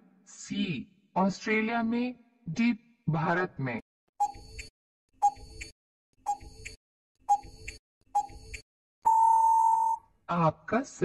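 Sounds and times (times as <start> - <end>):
timer ticks: 4.2 - 5.7, 6.3 - 8.6
long steady beep: 9.0 - 10.0.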